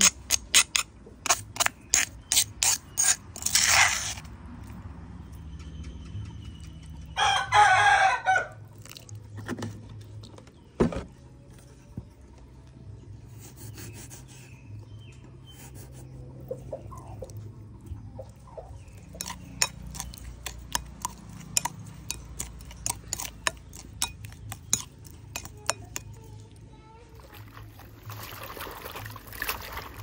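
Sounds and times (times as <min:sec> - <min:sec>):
rooster crowing: 0:07.2 - 0:08.6.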